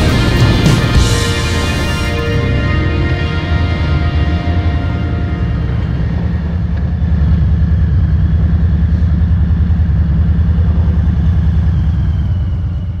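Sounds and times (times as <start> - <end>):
motorcycle engine idling: 5.4 - 13.0.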